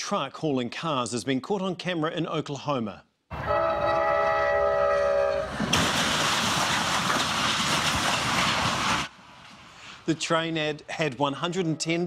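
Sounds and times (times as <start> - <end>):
train air horn chord: 3.4 - 5.5
train crashing into truck: 5.3 - 9.7
loud rush of wreckage noise: 5.5 - 9.4.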